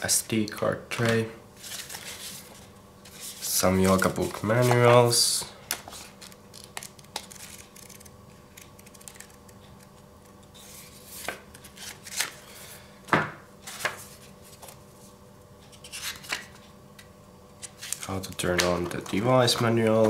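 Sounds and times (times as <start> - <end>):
pages flipping and rustling: 1.0 - 5.0, 5.7 - 9.9, 10.6 - 12.6, 13.6 - 14.9, 15.8 - 16.6, 17.6 - 20.0.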